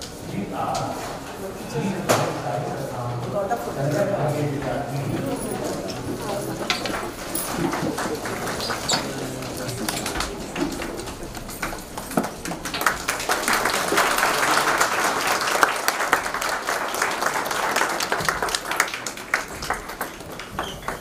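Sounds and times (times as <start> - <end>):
audience applauding: 5.1 - 21.0.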